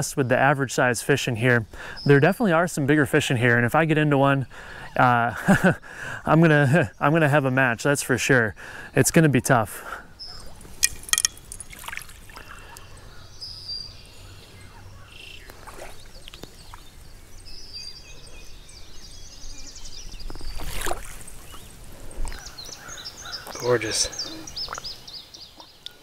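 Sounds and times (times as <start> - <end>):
river ambience: 0.0 - 26.0
songbirds singing: 0.0 - 26.0
water splash: 10.9 - 12.5, 20.4 - 21.6.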